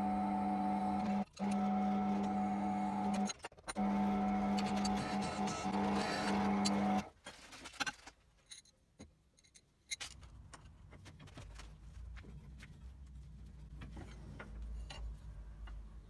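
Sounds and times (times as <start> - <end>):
drill press motor running: 0.0 - 7.1.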